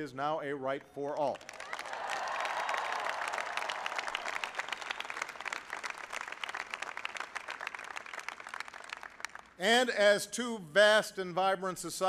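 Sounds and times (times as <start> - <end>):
crowd applauding: 1.4 - 9.6.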